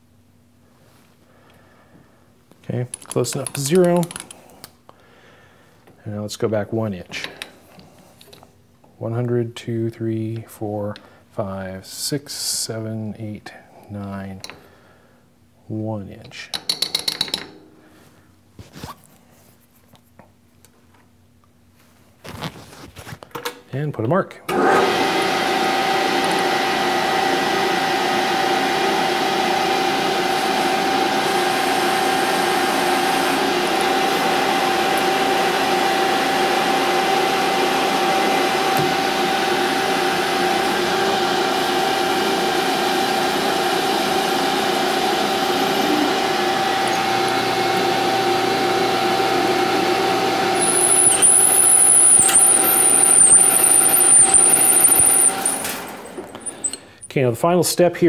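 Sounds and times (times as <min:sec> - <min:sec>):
metal lathe whining: 0:24.8 - 0:56.9
drill cutting aluminum: 0:29.4 - 0:36.4, 0:44.0 - 0:56.9
high wavering drill squeal: 0:50.6 - 0:56.9.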